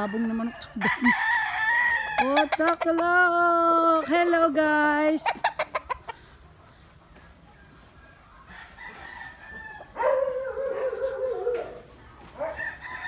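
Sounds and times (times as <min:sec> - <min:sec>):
roosters crowing: 0:00.0 - 0:04.5, 0:08.1 - 0:13.0.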